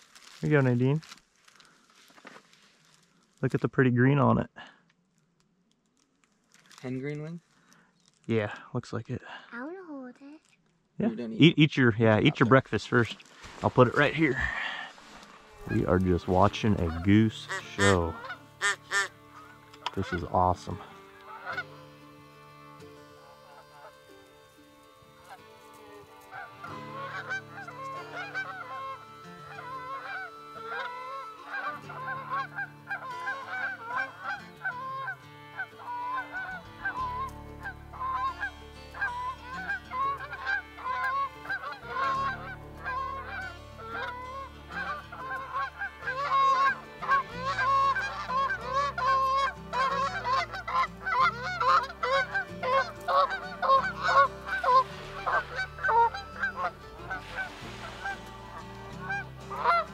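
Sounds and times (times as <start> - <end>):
geese honking: 12.2 - 59.9.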